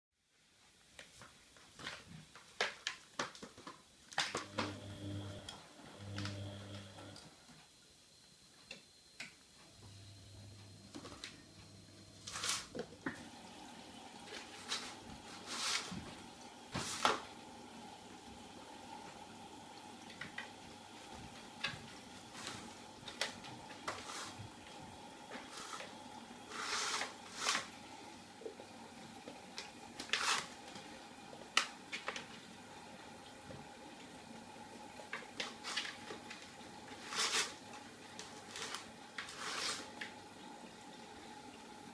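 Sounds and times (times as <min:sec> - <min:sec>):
paws tapping plastic basket: 0:01.0 - 0:04.5
faint steady hum: 0:04.0 - 0:41.9
kitten scratching plastic basket: 0:21.6 - 0:24.6, 0:25.2 - 0:27.7, 0:35.4 - 0:37.6, 0:38.2 - 0:40.0.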